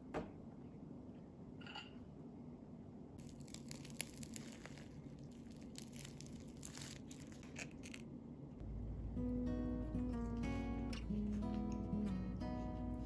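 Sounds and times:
croissant crust crackling: 0:03.2 - 0:08.2
acoustic guitar music: 0:08.6 - 0:13.0.

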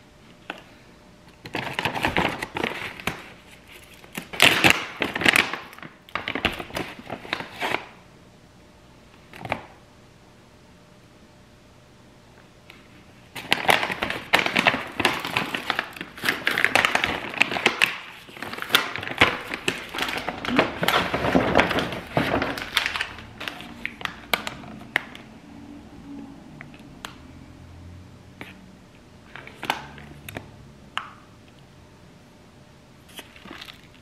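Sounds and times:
crinkling and rustling: 0:13.4 - 0:25.3.

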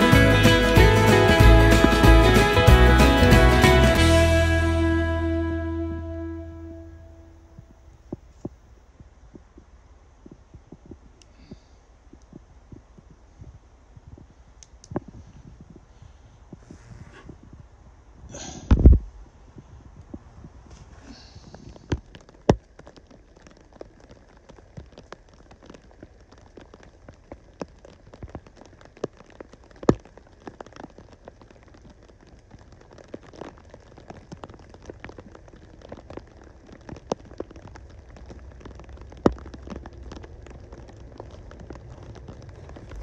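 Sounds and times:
raindrops tapping: 0:00.0 - 0:04.1, 0:21.1 - 0:43.0
low steady background hiss: 0:00.0 - 0:43.0.

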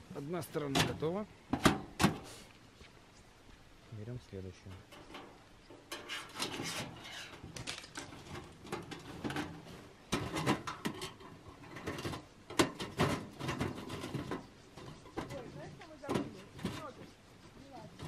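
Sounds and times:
metal panels scraping: 0:04.6 - 0:17.0.

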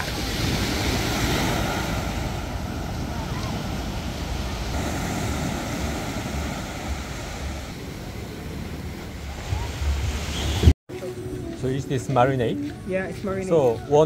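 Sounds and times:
surf breaking: 0:00.0 - 0:10.7.

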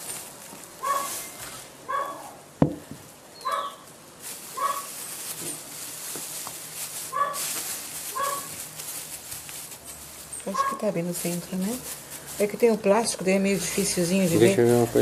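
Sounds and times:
plastic bag rustling: 0:00.0 - 0:15.0
dog barking: 0:00.8 - 0:01.1, 0:01.9 - 0:02.4, 0:03.4 - 0:03.8, 0:04.6 - 0:04.9, 0:07.1 - 0:07.5, 0:08.2 - 0:08.5, 0:10.5 - 0:10.8
sharp knock: 0:02.6 - 0:02.9.

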